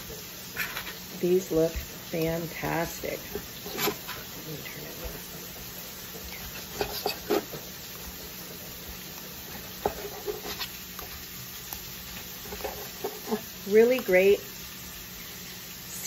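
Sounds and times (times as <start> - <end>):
faint hiss: 11.7 - 16.0.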